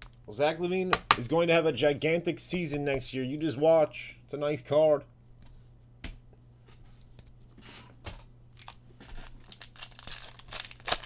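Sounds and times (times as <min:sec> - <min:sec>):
card pack wrapper crinkling and tearing: 0:08.6 - 0:11.0.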